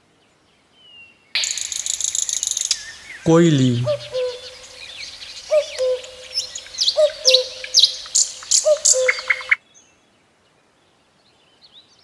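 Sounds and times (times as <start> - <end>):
cuckoo calling: 1.4 - 9.6
small birds chirping: 1.4 - 9.6.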